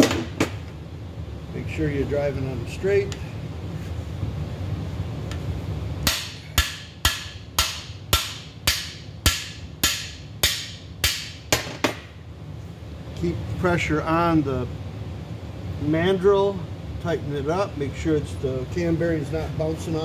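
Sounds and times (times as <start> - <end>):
hammer striking metal bar: 6.0 - 12.1.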